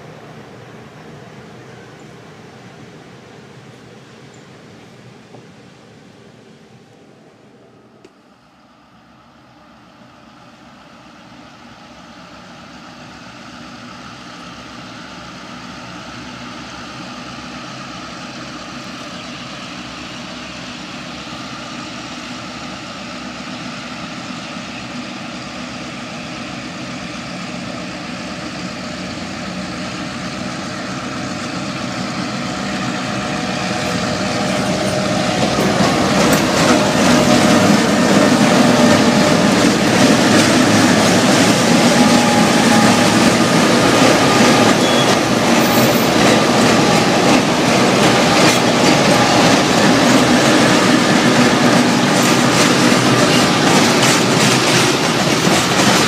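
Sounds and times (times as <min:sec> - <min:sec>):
diesel locomotive engine drone: 0:00.0 - 0:56.0
train wheels clicking on rails: 0:11.9 - 0:56.0.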